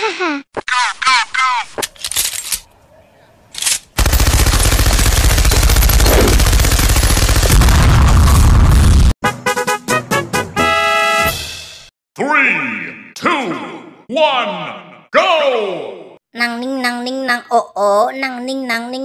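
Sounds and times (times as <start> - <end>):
machine-gun fire: 4.0 - 9.1.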